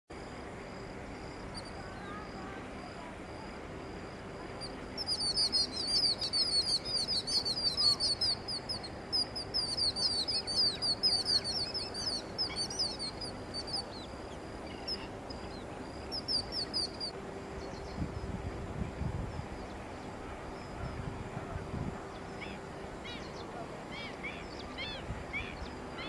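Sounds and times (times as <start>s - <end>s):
bird chirping: 4.6s - 18.1s.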